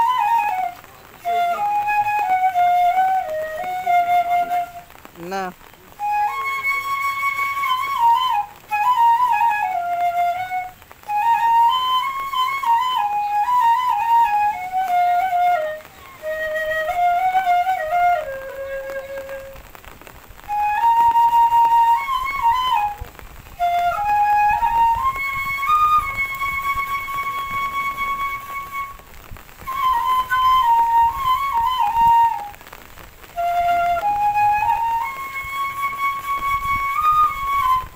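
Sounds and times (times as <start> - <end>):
solo flute melody: 0.0 - 37.9.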